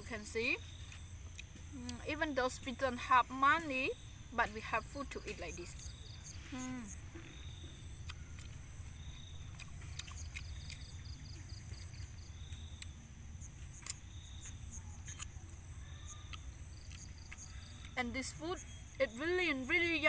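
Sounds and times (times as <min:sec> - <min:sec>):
crickets chirping: 0:00.0 - 0:20.0
low steady rumble: 0:00.0 - 0:20.0.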